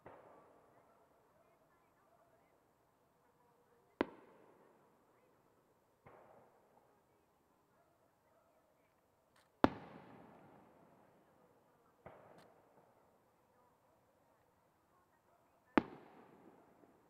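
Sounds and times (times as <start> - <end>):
firework bangs with rolling echo: 9.6 - 11.1, 15.8 - 17.0.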